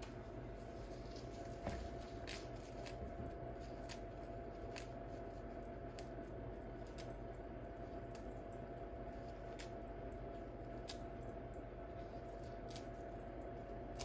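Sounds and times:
basil leaves tearing: 0.0s - 8.4s, 9.0s - 9.9s, 10.6s - 11.2s, 12.1s - 13.1s
faint steady hum: 0.0s - 14.0s.

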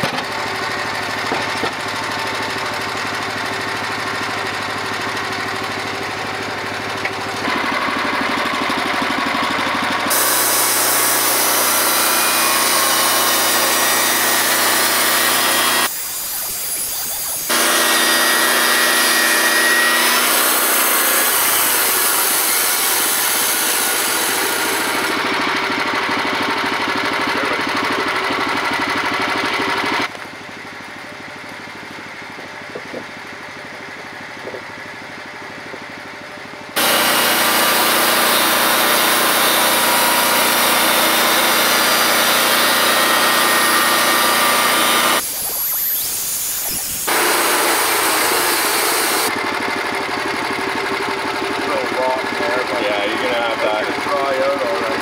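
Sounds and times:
small gasoline engine running: 0.0s - 55.0s
band saw blade hissing through log: 10.0s - 25.2s, 36.8s - 49.3s.

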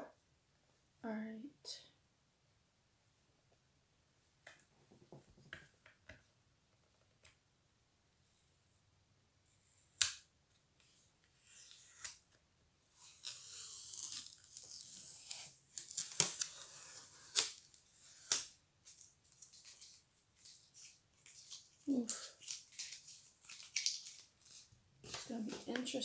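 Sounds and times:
plastic box crackling and snapping: 15.7s - 16.6s, 22.2s - 25.9s.

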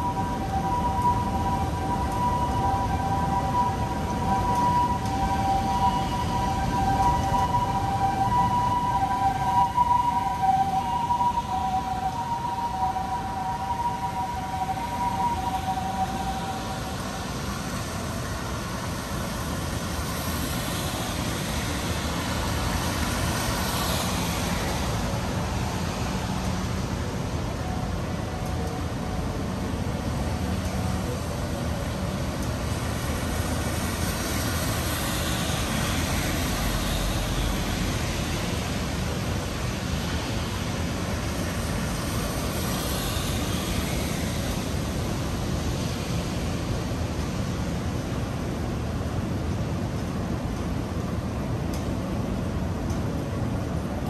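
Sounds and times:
two-tone siren: 0.0s - 18.3s, 35.0s - 39.3s
city traffic rumble: 0.0s - 54.0s.

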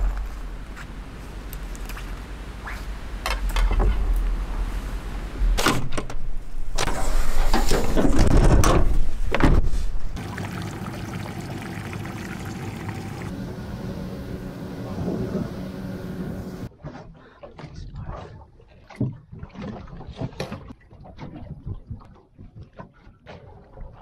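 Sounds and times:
outboard motor idling: 10.2s - 16.7s.

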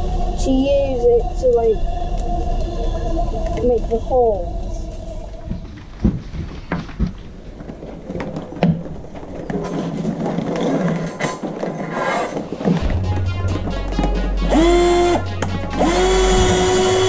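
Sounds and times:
wooden boards knocking: 5.5s - 9.8s
low steady hum: 12.8s - 17.0s.

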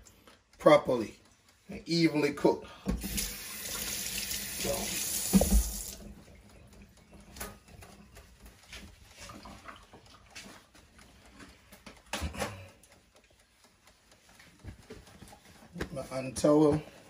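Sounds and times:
tap running with hands rinsed: 2.9s - 6.8s
faint clicks and handling noises: 6.2s - 17.0s.

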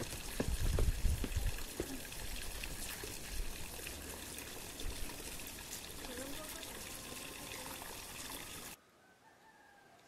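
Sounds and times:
footsteps on stone steps: 0.0s - 2.1s
outdoor background hiss: 0.0s - 10.0s.

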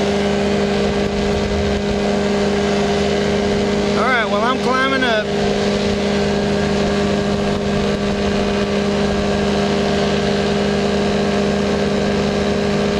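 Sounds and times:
engine and propeller drone: 0.0s - 12.9s
rush of air: 0.2s - 4.0s.

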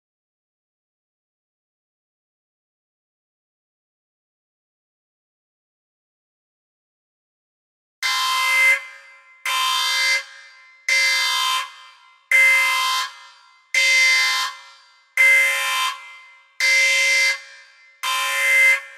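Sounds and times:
electronic alarm blasts: 8.0s - 18.9s.

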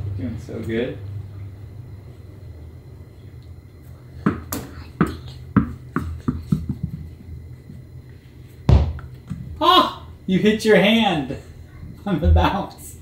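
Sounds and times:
ball bouncing with dull knocks: 4.2s - 7.2s, 8.7s - 9.5s.

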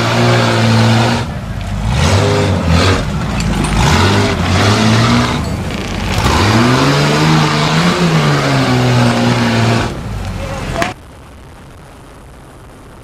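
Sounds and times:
engine revving hard: 0.0s - 10.1s
tyres clawing through dirt: 0.0s - 10.4s.

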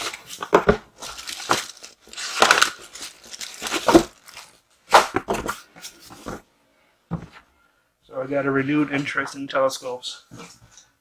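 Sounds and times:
plastic bag crinkling: 1.0s - 4.8s.

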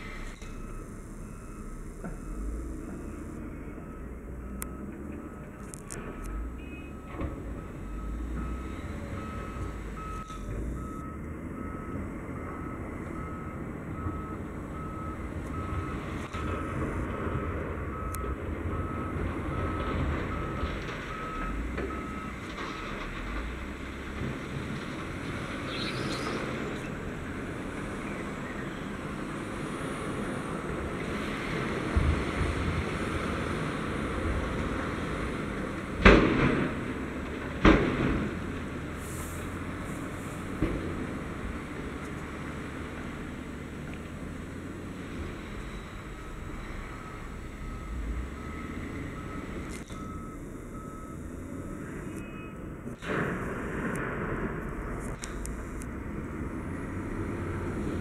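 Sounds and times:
reversing alarm beeping: 0.0s - 23.2s, 44.8s - 52.9s
truck diesel engine running: 0.0s - 25.4s
heavy diesel engines running: 0.0s - 58.0s.

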